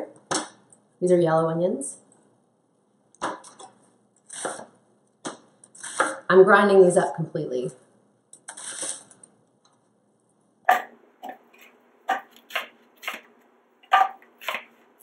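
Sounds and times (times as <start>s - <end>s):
knife chopping on cutting board: 12.1s - 14.8s.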